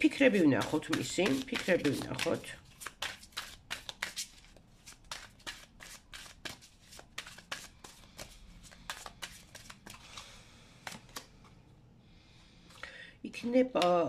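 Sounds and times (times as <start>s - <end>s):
cards being shuffled: 0.1s - 11.4s.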